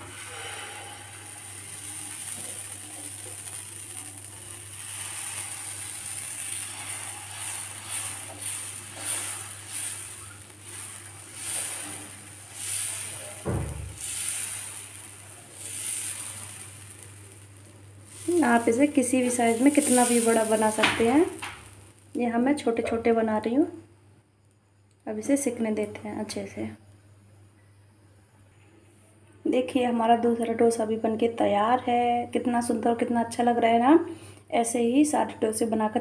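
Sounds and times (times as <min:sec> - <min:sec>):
steel ladle scraping pan: 0:00.0 - 0:02.4, 0:04.8 - 0:13.4
batter sizzling on a pan: 0:00.0 - 0:22.6
low thump: 0:13.4 - 0:14.0.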